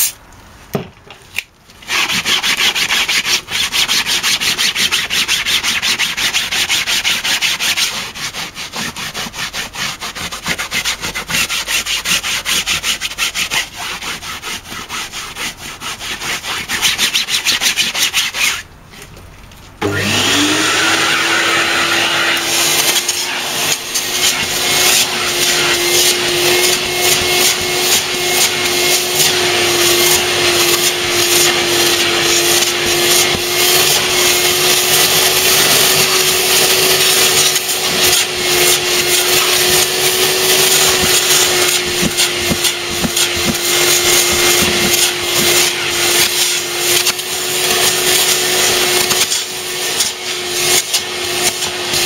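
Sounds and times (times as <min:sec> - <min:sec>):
vacuum nozzle rasping on fabric: 0:01.8 - 0:18.6, 0:19.8 - 0:52.0
hand scrubbing fabric: 0:01.8 - 0:18.7, 0:20.1 - 0:52.0
vacuum motor whine: 0:19.8 - 0:52.0.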